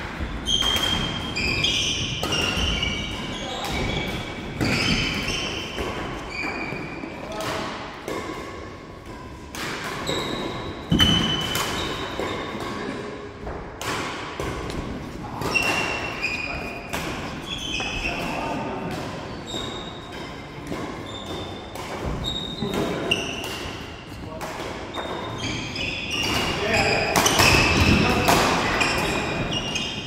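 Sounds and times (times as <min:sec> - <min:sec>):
trainers squeaking on wooden floor: 0:00.4 - 0:07.0, 0:17.4 - 0:18.6, 0:21.0 - 0:23.4
rackets hitting shuttlecock: 0:00.4 - 0:08.6, 0:09.4 - 0:12.9, 0:13.5 - 0:16.1, 0:26.1 - 0:29.6.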